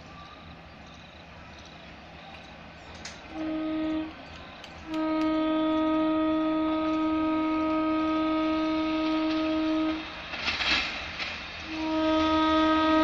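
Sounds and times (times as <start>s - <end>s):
locomotive horn blast: 3.3s - 4.2s, 4.8s - 10.2s, 11.6s - 13.0s.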